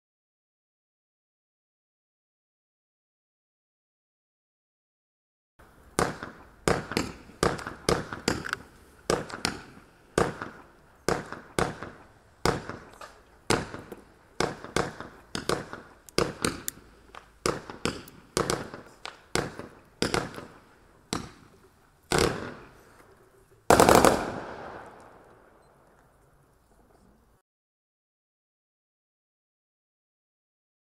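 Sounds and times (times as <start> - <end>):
firework pops: 6.0 - 22.8.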